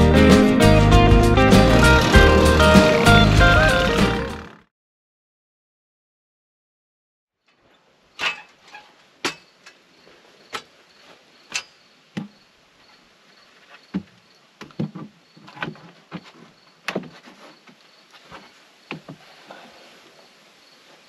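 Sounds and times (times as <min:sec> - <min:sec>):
insects trilling: 0:08.1 - 0:21.0.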